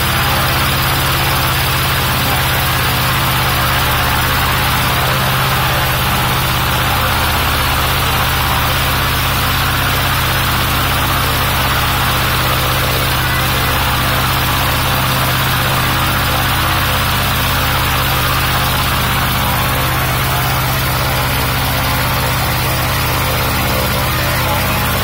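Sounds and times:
light aircraft engine idling: 0.0 - 25.0.

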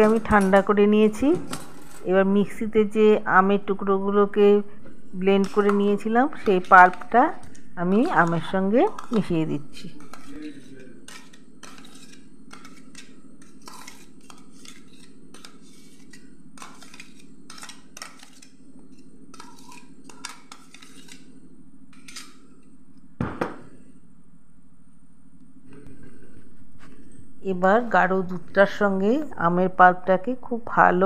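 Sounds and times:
metal spoon scraping a steel bowl: 0.0 - 2.2, 5.2 - 21.3, 22.0 - 22.4
steady low hum: 0.0 - 31.0
loud knocks: 23.2 - 23.7.

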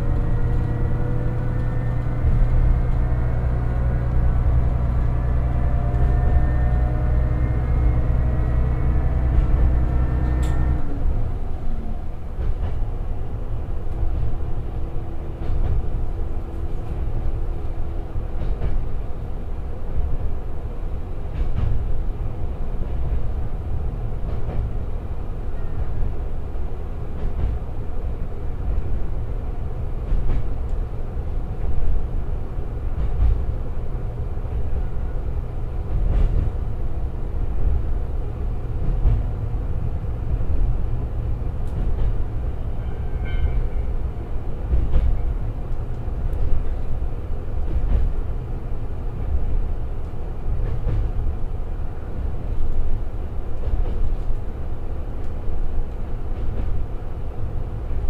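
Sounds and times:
diesel engine droning: 0.0 - 12.2.

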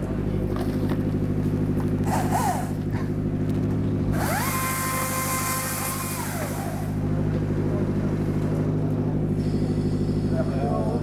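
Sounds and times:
engine running: 0.0 - 11.0
motor whining with hiss: 2.0 - 2.8, 4.1 - 7.0.

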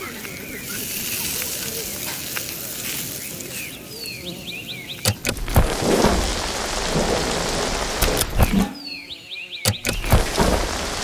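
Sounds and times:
food sizzling on a grill: 0.0 - 4.0, 5.4 - 8.5, 10.0 - 11.0
birds chirping: 0.0 - 11.0
heavy rain: 5.2 - 8.6, 9.8 - 11.0
thunder cracks and rumbling: 5.4 - 8.5.

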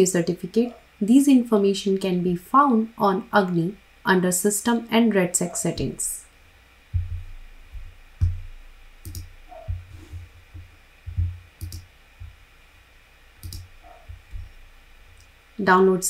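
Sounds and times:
low thumps: 6.9 - 12.4, 13.6 - 14.7
computer mouse clicking: 9.0 - 11.9, 13.4 - 14.5.

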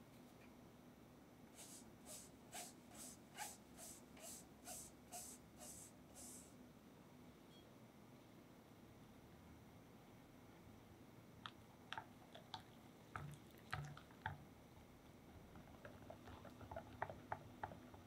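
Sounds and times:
whisk mixing batter in bowl: 15.5 - 18.0.

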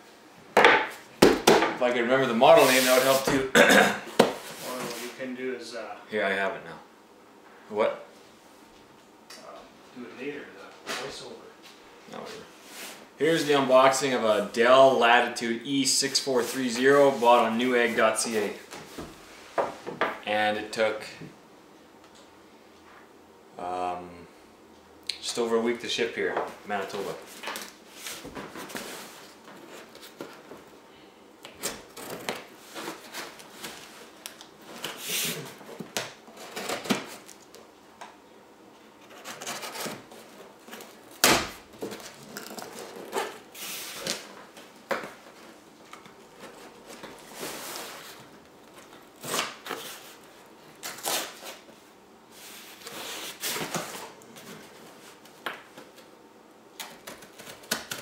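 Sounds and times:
tape ripping: 40.8 - 44.3, 48.9 - 50.0, 50.8 - 51.6.

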